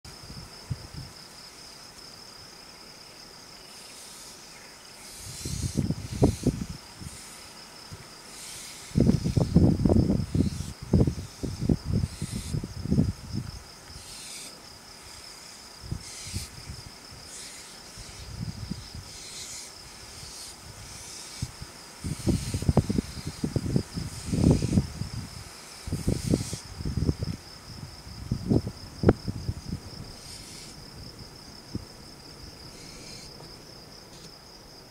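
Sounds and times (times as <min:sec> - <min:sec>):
crickets chirring: 0:00.0 - 0:34.9
owls hissing: 0:03.8 - 0:07.6, 0:08.2 - 0:12.7, 0:14.0 - 0:24.8, 0:25.6 - 0:26.8, 0:30.1 - 0:30.8, 0:32.7 - 0:33.4.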